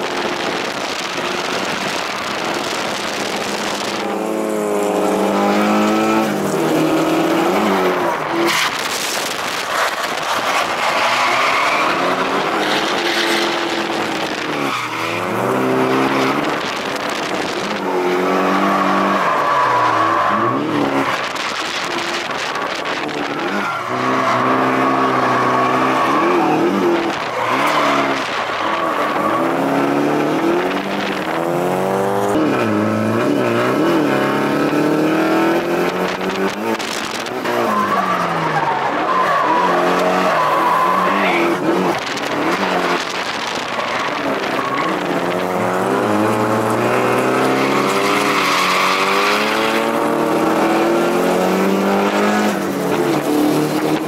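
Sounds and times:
car engine revving: 0.0 - 54.0
tyres squealing: 37.4 - 45.4.

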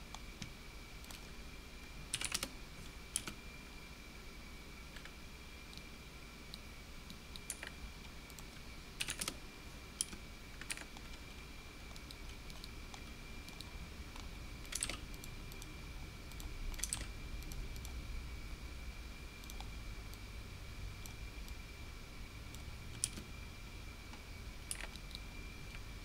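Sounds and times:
faint high-pitched whine: 0.0 - 26.0
keyboard and mouse clicking: 2.1 - 2.5, 3.2 - 3.4, 7.4 - 9.4, 10.0 - 11.3, 11.9 - 15.7, 16.3 - 18.0, 22.9 - 23.2, 24.7 - 25.2.

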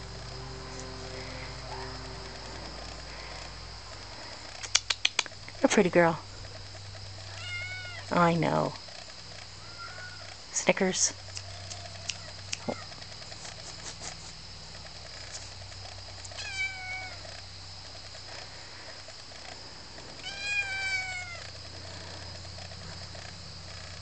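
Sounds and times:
kitten meowing: 7.3 - 8.1, 16.4 - 17.2, 20.2 - 21.4.

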